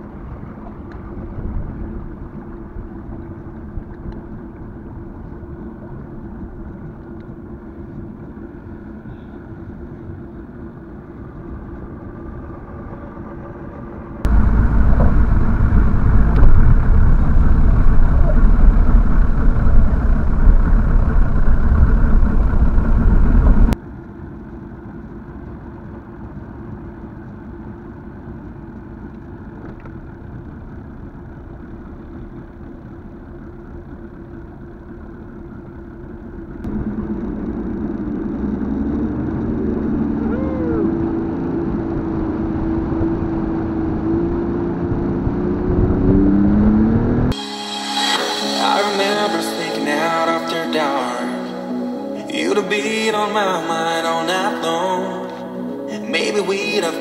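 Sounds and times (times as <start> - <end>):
outboard motor running: 0.0 - 47.1.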